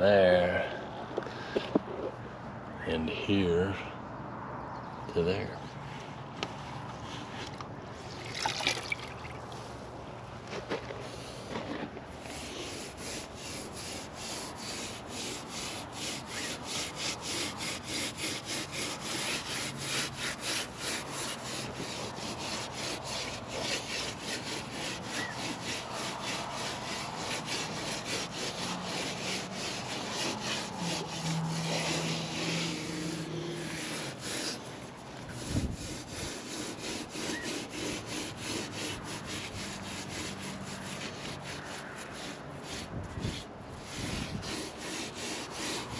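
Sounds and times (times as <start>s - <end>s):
sponge scrubbing mortar on stone: 11.1s - 45.9s.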